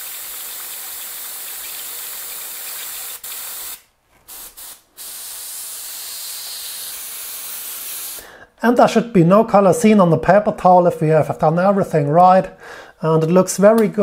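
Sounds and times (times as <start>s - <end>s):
airbrush air puffs: 3.2s - 8.2s
airbrush hissing: 3.2s - 8.2s.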